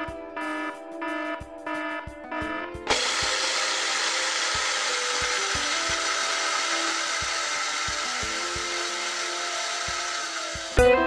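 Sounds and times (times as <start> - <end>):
mixer grinder motor running: 2.9 - 10.9.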